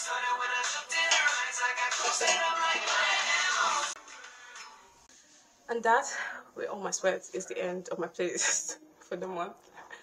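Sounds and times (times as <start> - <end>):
pop song with singing: 0.0 - 5.0.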